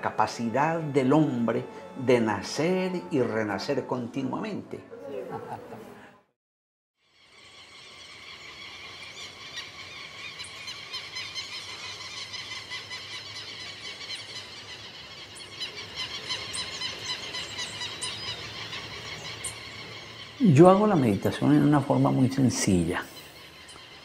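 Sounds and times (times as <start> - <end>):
chorus of calling animals: 7.8 - 24.0.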